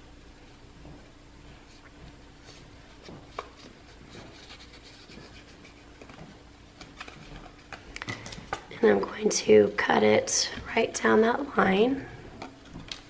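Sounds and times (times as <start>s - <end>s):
paper rustling and creasing: 2.4s - 8.6s.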